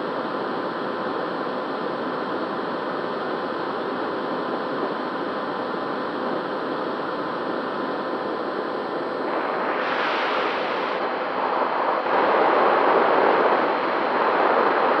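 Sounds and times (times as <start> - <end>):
wind rushing over microphone: 9.0 - 15.0.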